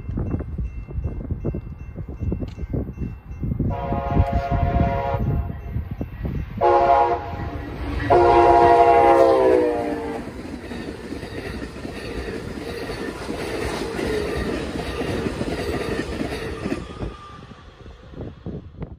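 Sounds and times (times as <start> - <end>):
train cars rolling by: 0.0 - 18.9
train air horn: 3.7 - 5.5, 6.6 - 10.3.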